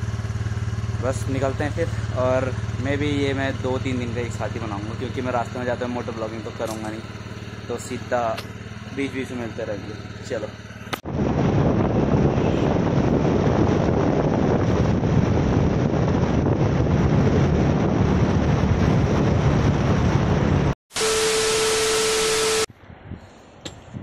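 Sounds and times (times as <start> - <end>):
low motorcycle engine drone: 0.0 - 24.0
wind rushing over microphone: 11.0 - 20.8, 22.8 - 24.0
static glitch effect: 20.9 - 22.7.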